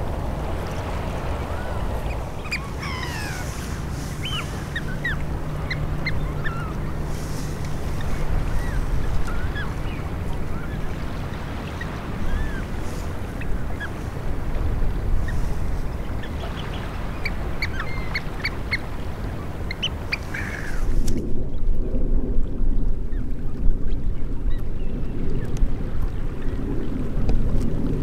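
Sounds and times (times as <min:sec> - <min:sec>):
birds calling: 0:00.0 - 0:20.9
low rumble of wind and water: 0:00.0 - 0:28.0.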